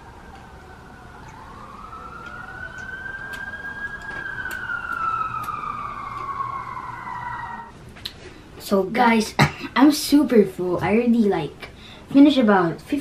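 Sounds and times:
emergency vehicle siren wailing: 0:00.0 - 0:07.8.

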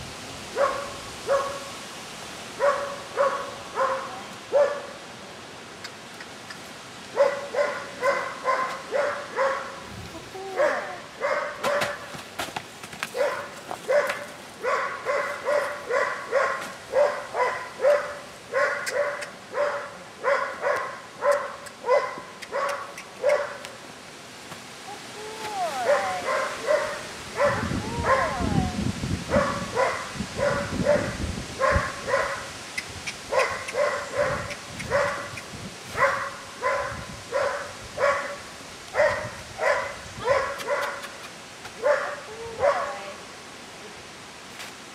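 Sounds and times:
dog barking: 0:00.6 - 0:01.7, 0:02.6 - 0:05.0, 0:07.2 - 0:09.8, 0:10.6 - 0:12.1, 0:13.1 - 0:23.6, 0:25.9 - 0:28.3, 0:29.3 - 0:32.5, 0:33.3 - 0:35.4, 0:36.0 - 0:38.4, 0:39.0 - 0:41.1, 0:41.8 - 0:42.9.

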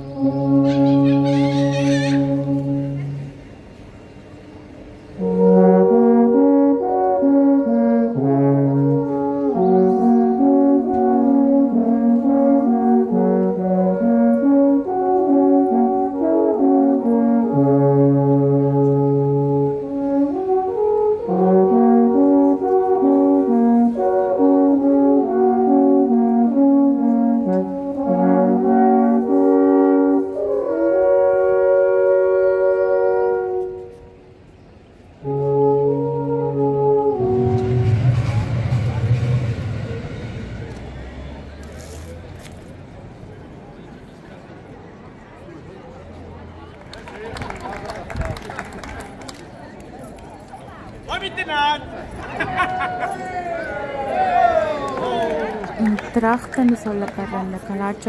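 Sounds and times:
alphorns playing in harmony: 0:00.0 - 0:03.4.

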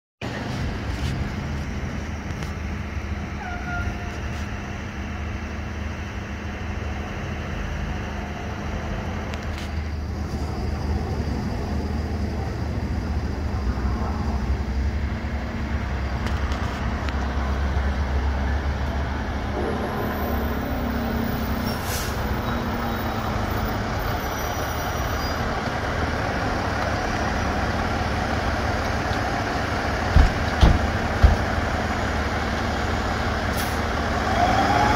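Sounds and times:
diesel engines rumbling: 0:00.2 - 0:34.9.

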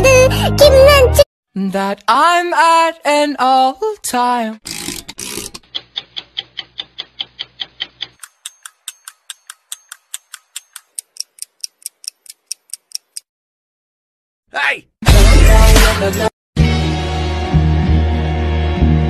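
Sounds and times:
fast ticking clicks: 0:04.9 - 0:13.2.

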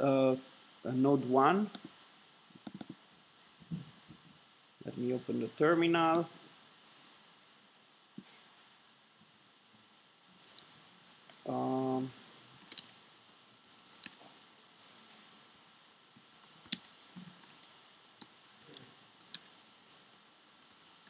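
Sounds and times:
keyboard keys clicking: 0:02.7 - 0:02.9, 0:11.9 - 0:12.9, 0:14.0 - 0:14.2, 0:16.2 - 0:20.9.

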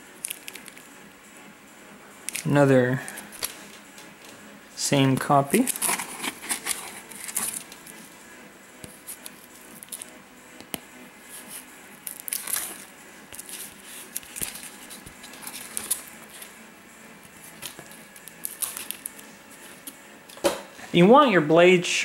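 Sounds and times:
plastic bag crinkling: 0:00.2 - 0:00.8, 0:05.2 - 0:08.1, 0:11.4 - 0:16.5, 0:17.3 - 0:20.0
cardboard rustling: 0:05.2 - 0:08.1, 0:11.2 - 0:16.5
knife slitting packing tape: 0:05.5 - 0:08.0, 0:11.4 - 0:16.5, 0:17.4 - 0:20.0.

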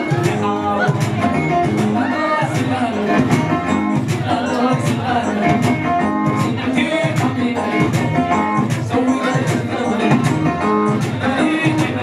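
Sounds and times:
plucked string instrument: 0:00.0 - 0:12.0.

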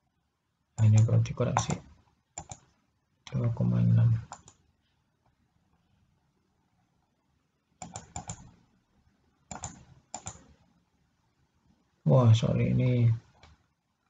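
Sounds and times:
keyboard keys clicking: 0:00.8 - 0:01.8, 0:02.4 - 0:02.7, 0:07.8 - 0:08.5, 0:09.5 - 0:10.5.

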